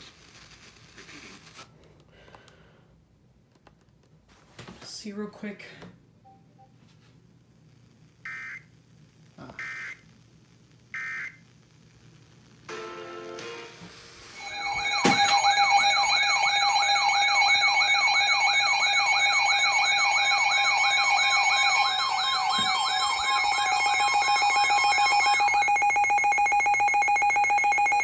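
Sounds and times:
steady alarm tones: 9.4s - 10.0s, 14.1s - 28.0s
weather alert radio warbling siren: 14.4s - 28.0s.

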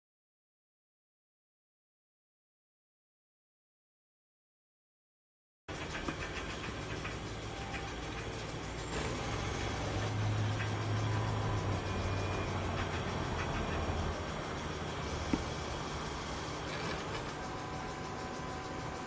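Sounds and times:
printer mechanical hum: 5.7s - 19.0s.

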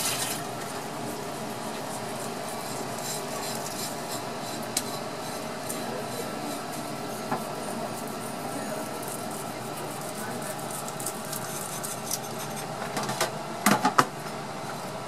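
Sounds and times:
knife scraping fish skin: 1.9s - 5.8s, 6.4s - 12.7s.

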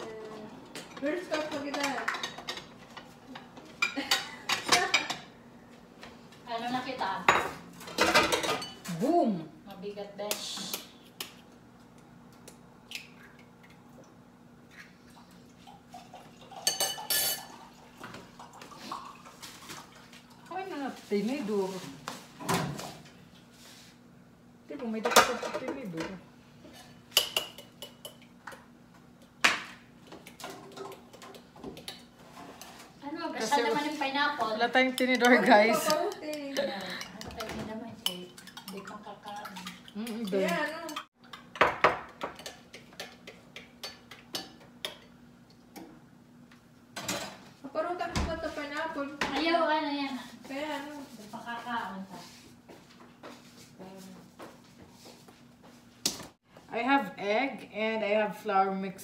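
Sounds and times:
dishes and utensils clinking: 0.8s - 5.3s, 7.3s - 8.9s, 16.5s - 17.6s
dishes clinking and knocking: 0.8s - 5.3s, 7.3s - 8.8s, 25.0s - 28.6s, 40.2s - 43.2s.

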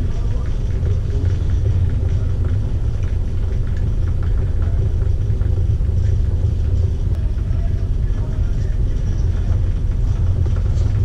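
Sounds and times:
ship engine drone: 0.0s - 11.0s.

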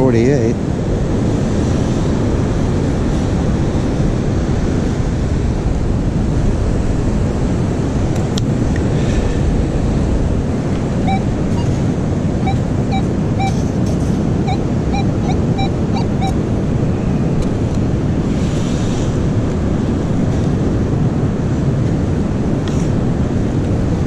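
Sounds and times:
ocean surf: 0.0s - 24.0s
wind on microphone: 0.0s - 24.0s
metal detector beeping: 11.0s - 11.8s, 12.4s - 13.8s, 14.4s - 16.4s.

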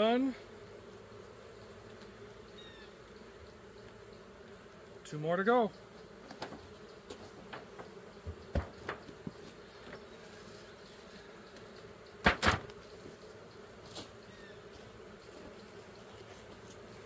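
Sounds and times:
brick set on hive cover: 0.0s - 17.0s
honeybees buzzing: 0.0s - 17.0s
knocks of wooden hive parts: 6.2s - 10.1s, 11.5s - 12.8s.

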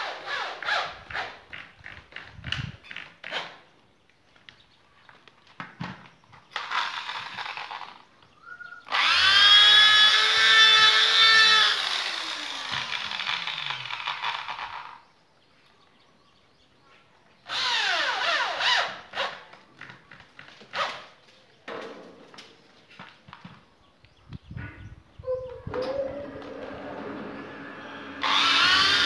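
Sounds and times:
electric drill boring into wood: 8.9s - 15.0s, 17.5s - 19.4s, 27.6s - 29.0s.

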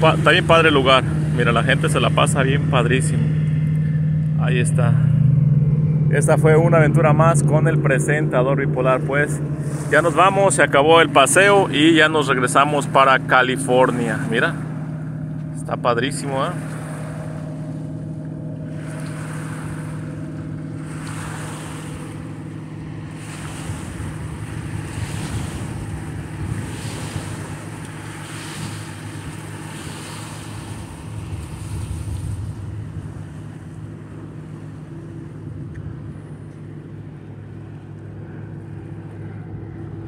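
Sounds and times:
low steady engine hum: 0.0s - 40.0s
water lapping against concrete: 0.0s - 40.0s
wind buffeting microphone: 16.4s - 40.0s.

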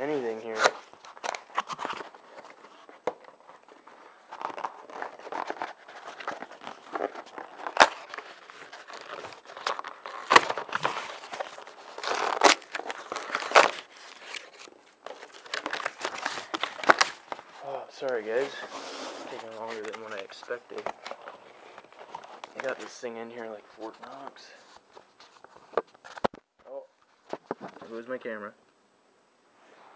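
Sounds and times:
cardboard box being torn open: 4.3s - 14.6s.

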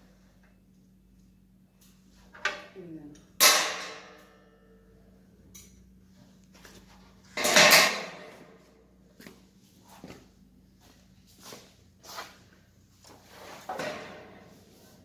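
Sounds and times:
metallic clangs: 3.3s - 4.8s, 7.3s - 8.5s.

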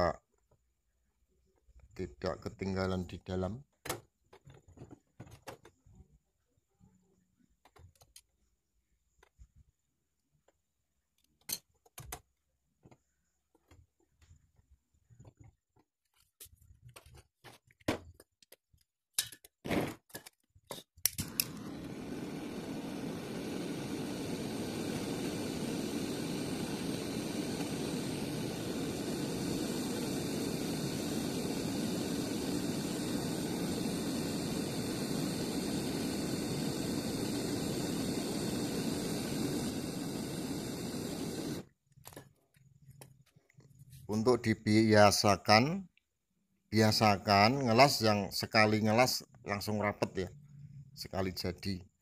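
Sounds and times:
brazing torch flame rushing: 21.2s - 41.7s.

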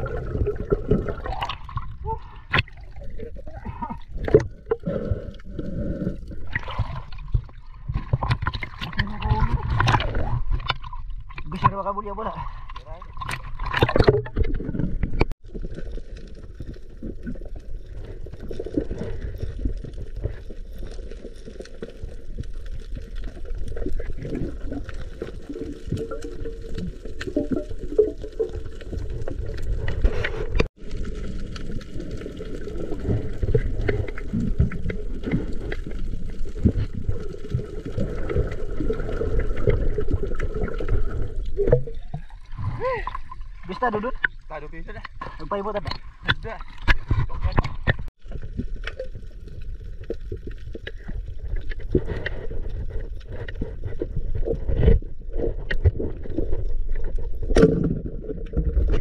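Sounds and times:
muffled underwater churning: 0.0s - 59.0s.

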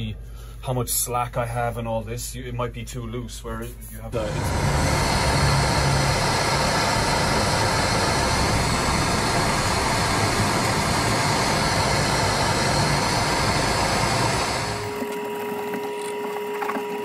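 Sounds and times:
gas torch flame hissing: 4.2s - 15.0s.

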